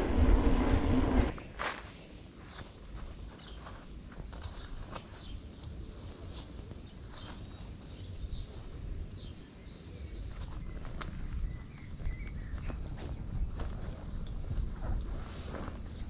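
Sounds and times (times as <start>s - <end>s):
steady low rumble: 0.0s - 1.8s
faint clicks and rustles: 2.4s - 9.6s, 10.3s - 16.0s
birds chirping: 4.5s - 13.8s.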